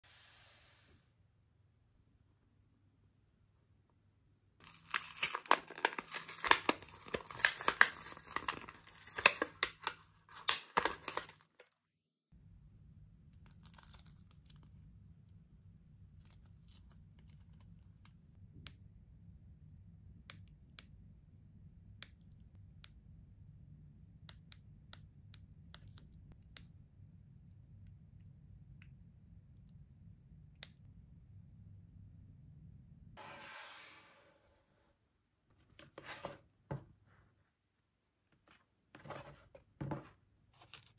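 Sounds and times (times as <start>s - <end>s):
plastic packaging tearing and crinkling: 4.6s - 11.6s.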